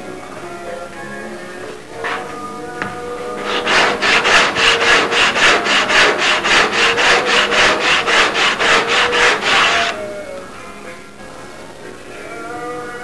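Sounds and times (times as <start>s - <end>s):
hand tool rubbing on wood: 2.0s - 2.4s, 3.2s - 10.0s.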